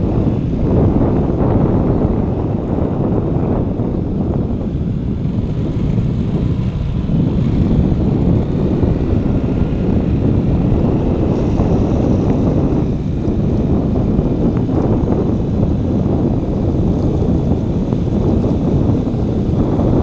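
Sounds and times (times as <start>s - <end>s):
vehicle engine drone: 0.0s - 20.0s
wind buffeting microphone: 0.0s - 20.0s.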